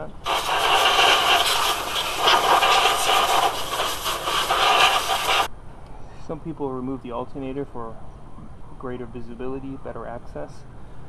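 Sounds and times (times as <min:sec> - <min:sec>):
air blow gun hissing: 0:00.0 - 0:05.5.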